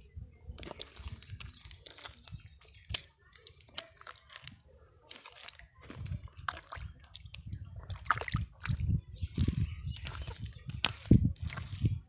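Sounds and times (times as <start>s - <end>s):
hands squelching wet mud: 0.0s - 12.0s.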